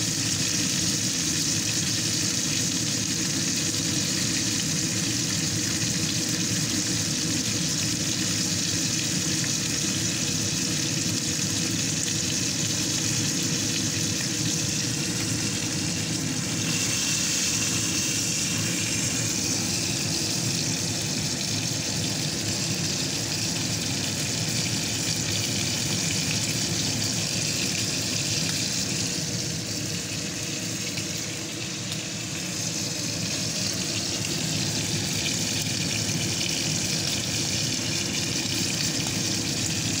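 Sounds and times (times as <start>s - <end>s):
steak sizzling in frying pan: 0.0s - 40.0s.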